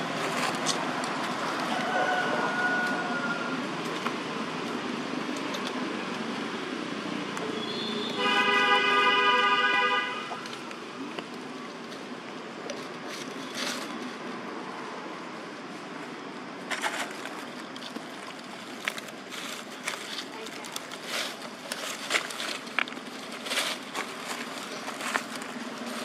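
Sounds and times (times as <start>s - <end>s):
steady background noise: 0.0s - 26.0s
vehicle horn toot: 7.6s - 10.4s.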